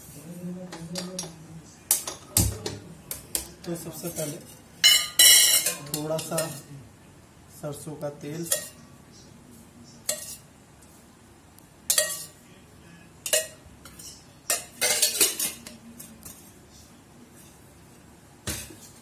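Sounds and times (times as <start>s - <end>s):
metal spoon clinking on bowl: 4.0s - 6.6s, 11.9s - 12.4s, 13.3s - 16.4s.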